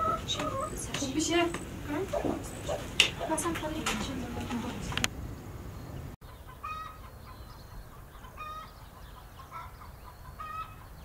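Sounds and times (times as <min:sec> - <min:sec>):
chicken clucking: 0:00.0 - 0:03.9, 0:06.2 - 0:10.9.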